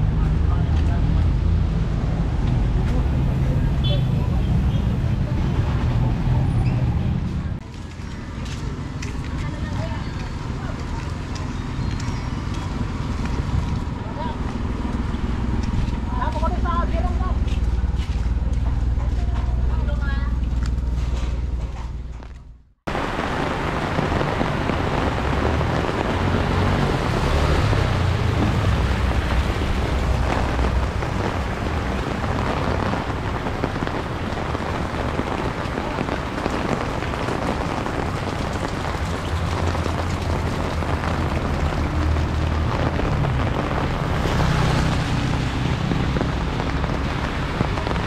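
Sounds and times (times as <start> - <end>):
steady rain: 22.9 - 48.0.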